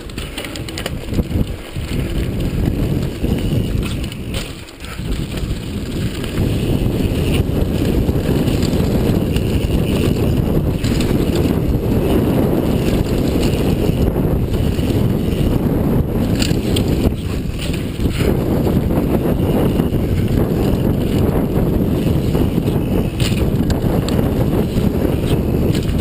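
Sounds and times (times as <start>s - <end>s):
bike tyres rumbling over dirt: 0.0s - 26.0s
wind buffeting microphone: 0.0s - 26.0s.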